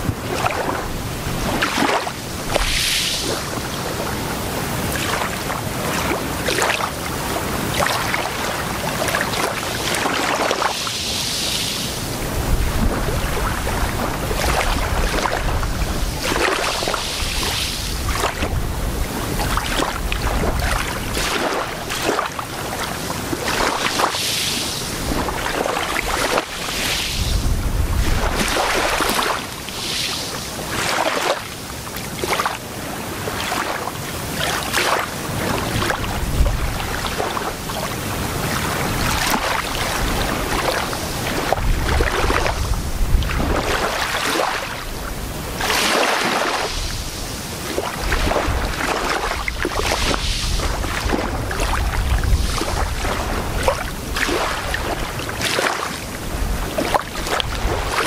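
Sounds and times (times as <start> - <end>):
waves lapping on sandy beach: 0.0 - 58.0
wind buffeting microphone: 12.0 - 21.9, 22.6 - 30.0, 35.4 - 37.6, 38.2 - 45.6, 46.6 - 55.3, 56.1 - 58.0.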